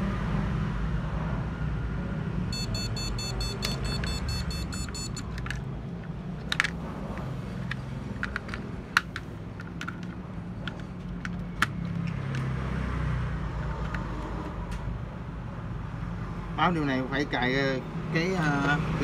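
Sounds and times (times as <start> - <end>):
rapid high-pitched electronic beeps: 2.5 - 5.2.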